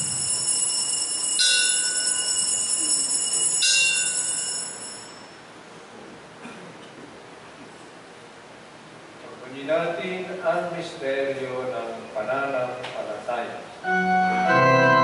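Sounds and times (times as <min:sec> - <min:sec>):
altar bell ringing: 0:00.0 - 0:05.5.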